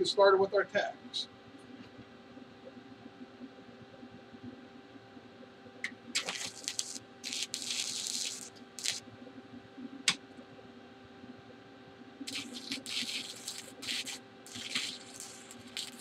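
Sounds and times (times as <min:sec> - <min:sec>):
welding arc crackling hiss: 0:06.1 - 0:09.0, 0:12.2 - 0:16.0.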